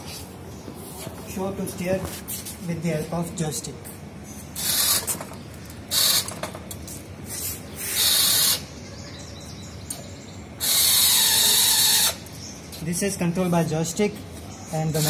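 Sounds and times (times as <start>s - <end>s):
wheelchair motors whirring: 4.5s - 6.6s, 10.6s - 12.3s.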